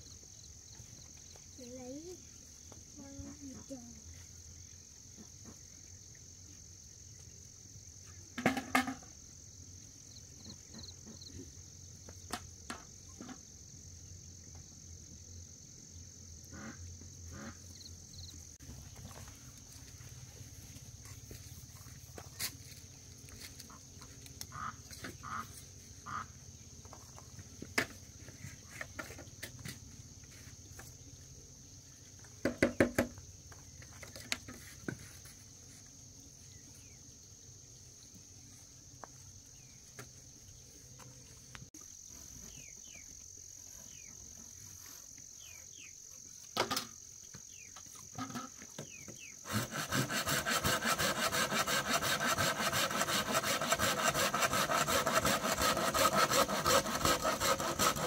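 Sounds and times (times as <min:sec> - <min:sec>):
insects chirring: 0:00.0 - 0:58.0
hand hoe scraping dry soil: 0:49.5 - 0:58.0.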